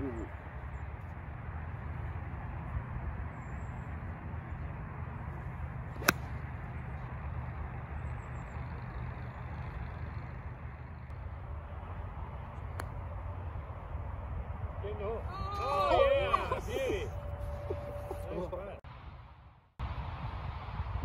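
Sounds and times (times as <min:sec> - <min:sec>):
golf club striking ball: 0:05.9 - 0:06.5.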